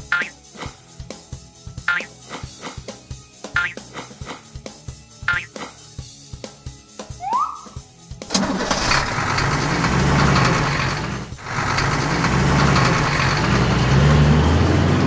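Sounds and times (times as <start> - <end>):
truck diesel engine starting: 8.3 - 15.0.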